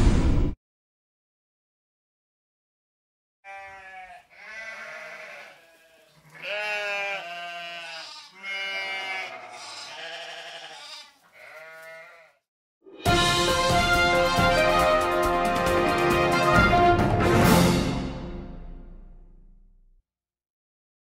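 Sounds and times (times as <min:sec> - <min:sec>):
sheep bleating: 0:03.5 - 0:12.5.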